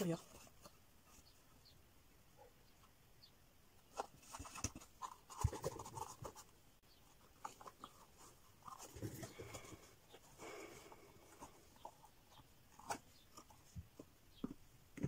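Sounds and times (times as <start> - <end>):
scratchy rustling of paper and carton: 3.9 - 6.5.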